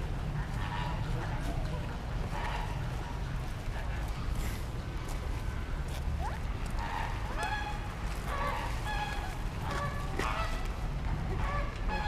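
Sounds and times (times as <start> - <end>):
steady low rumble: 0.0 - 12.0
honking bird calls: 6.8 - 10.8.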